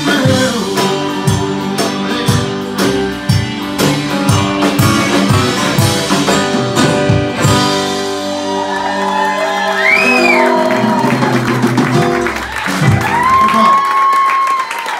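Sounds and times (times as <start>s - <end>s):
guitars ringing chords: 0.0s - 8.5s
person whooping: 8.4s - 11.4s, 12.5s - 14.9s.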